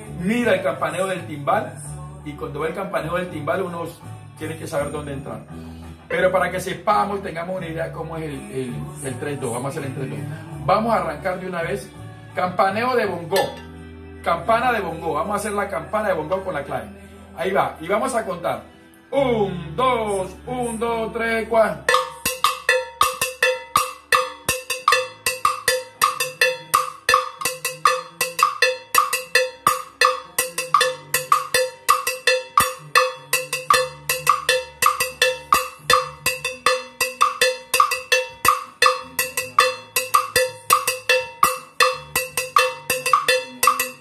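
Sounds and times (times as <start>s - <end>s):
cowbell struck with stick: 13.3s - 13.8s, 21.9s - 44.0s
low bass line: 18.6s - 23.5s
clave rhythm on plastic block: 21.9s - 44.0s.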